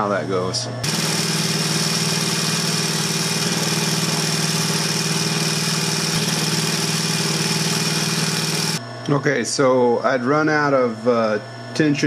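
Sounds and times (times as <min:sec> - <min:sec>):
sewing machine motor hum: 0:00.8 - 0:08.8
sewing machine stitching: 0:00.8 - 0:08.8.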